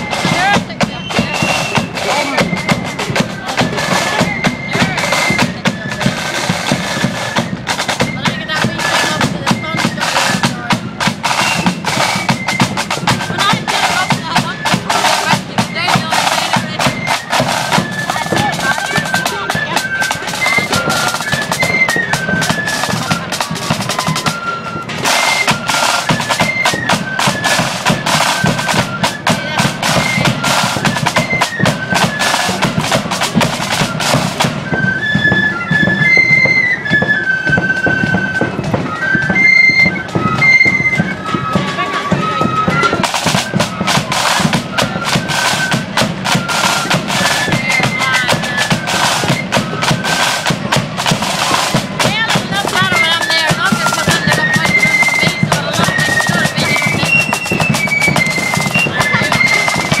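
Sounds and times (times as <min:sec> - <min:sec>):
bass drum beat: 0:00.0 - 0:06.1, 0:12.6 - 0:17.0, 0:17.7 - 0:21.5, 0:29.3 - 0:31.1, 0:46.9 - 0:48.6, 0:50.6 - 1:00.0
flutes playing melody: 0:00.0 - 1:00.0
side drums and bass drum: 0:00.0 - 1:00.0.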